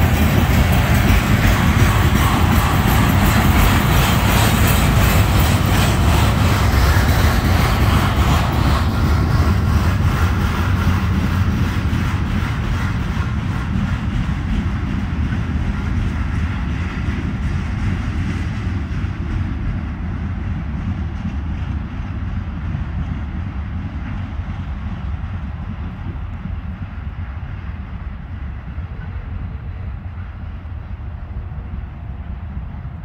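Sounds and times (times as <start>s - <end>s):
freight train wheels rumbling on track: 0.0s - 33.0s.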